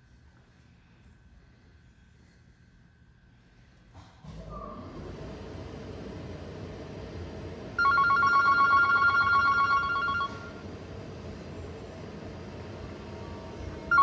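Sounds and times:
steady background noise: 0.0s - 14.0s
telephone ringing: 7.8s - 10.6s.

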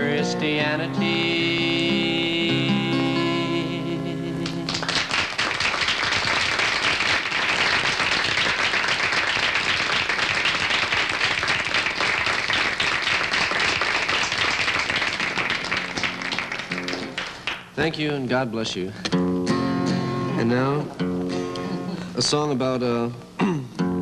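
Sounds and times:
acoustic guitar notes: 0.0s - 4.8s, 15.8s - 24.0s
audience applauding: 4.4s - 17.7s.

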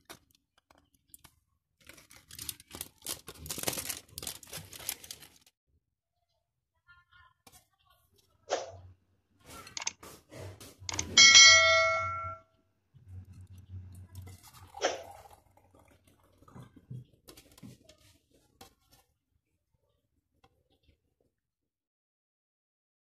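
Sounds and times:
notification bell ding: 10.9s - 12.4s.

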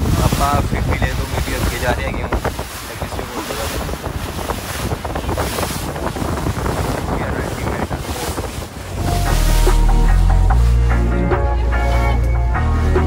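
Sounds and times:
wind buffeting microphone: 0.0s - 12.9s
boat engine rumble: 0.0s - 13.0s
water rushing past: 0.0s - 13.0s.

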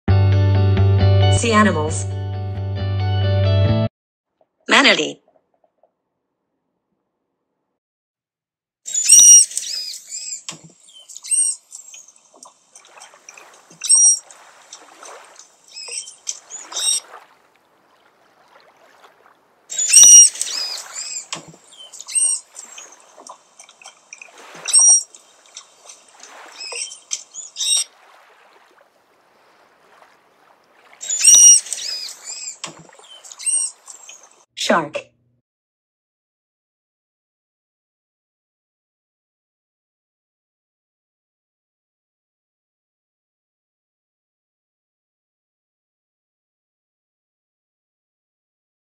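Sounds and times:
manatee chirps and squeaks: 8.9s - 12.2s, 13.0s - 14.3s, 15.7s - 17.2s, 19.7s - 28.0s, 31.0s - 34.4s.

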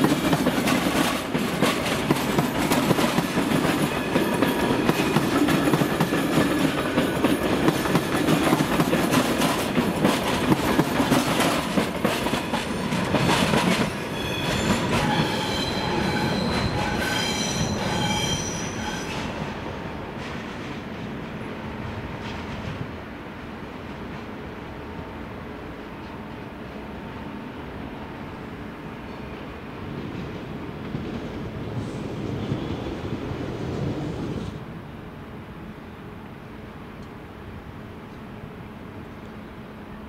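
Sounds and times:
train wheels clattering over rail joints: 0.0s - 17.2s
train wheels squealing: 13.2s - 19.6s.

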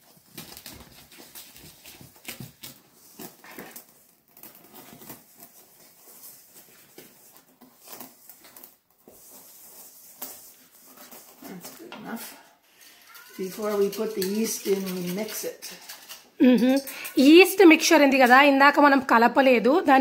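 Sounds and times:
spoon scraping metal bowl: 11.4s - 18.6s.

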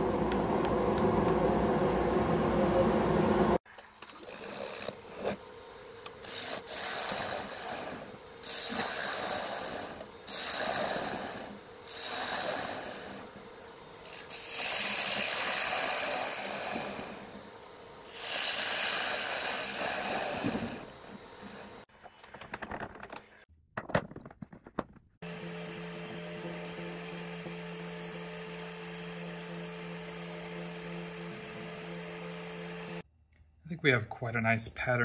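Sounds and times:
cutter scraping wood: 6.0s - 17.3s.

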